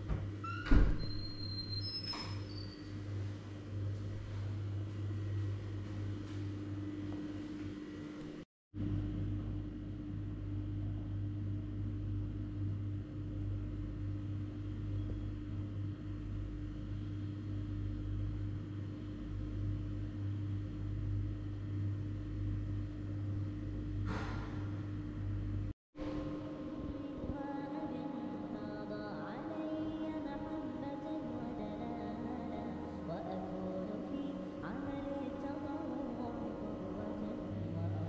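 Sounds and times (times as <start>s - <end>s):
low mechanical hum: 0.0s - 38.0s.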